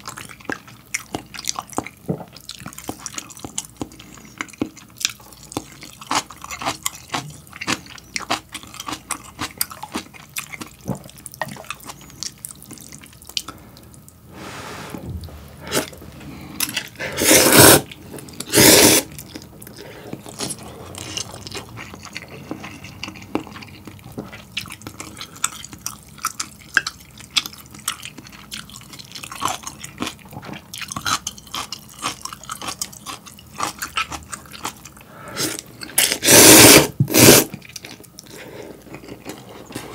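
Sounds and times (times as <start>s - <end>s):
wet chewing and smacking: 0.0s - 14.2s, 19.1s - 36.0s, 37.5s - 39.9s
slurping noodles: 14.3s - 23.2s, 35.2s - 37.6s.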